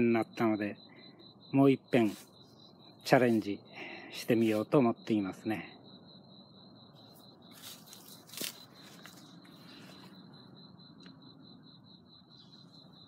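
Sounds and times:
rustles and scuffs: 7.1s - 10.2s.

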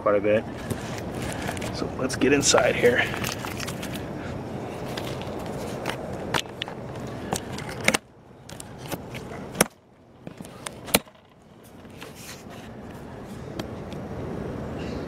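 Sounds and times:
cardboard rustling: 0.6s - 1.8s.

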